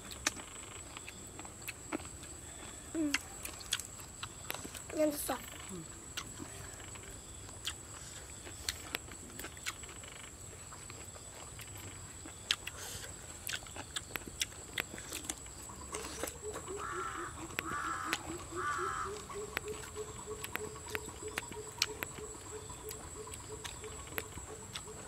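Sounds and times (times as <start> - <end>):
people chewing and mouth clicks: 0.0 - 25.0
harsh caws: 16.7 - 19.8.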